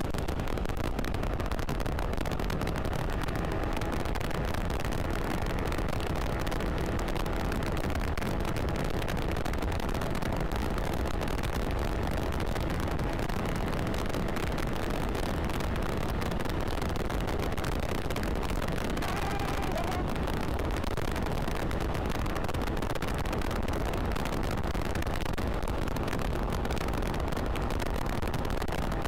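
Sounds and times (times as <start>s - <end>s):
wind rush on microphone: 0.0s - 29.0s
scooter engine running: 12.7s - 22.4s.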